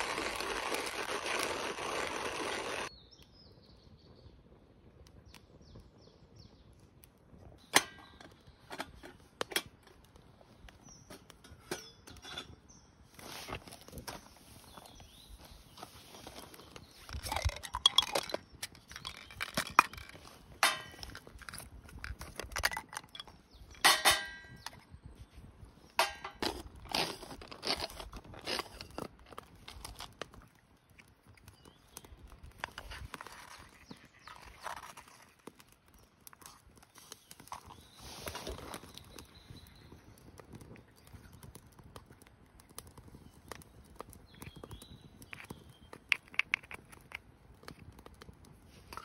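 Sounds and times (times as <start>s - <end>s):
objects knocking and clattering: 17.1s - 24.8s.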